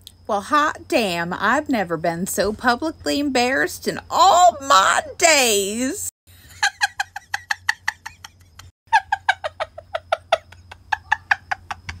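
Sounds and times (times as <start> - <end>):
woman laughing: 6.5 - 12.0.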